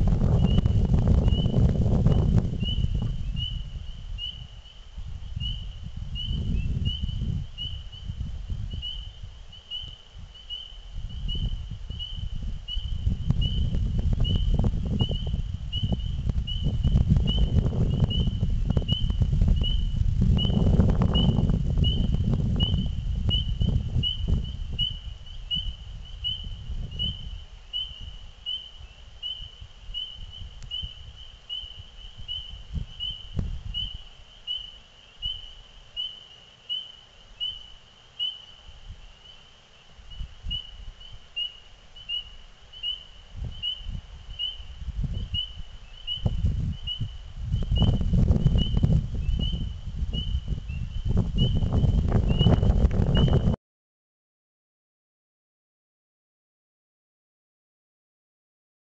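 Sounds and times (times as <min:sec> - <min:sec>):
low rumble of noise: 0:00.0 - 0:34.2
frog peeping: 0:00.4 - 0:53.6.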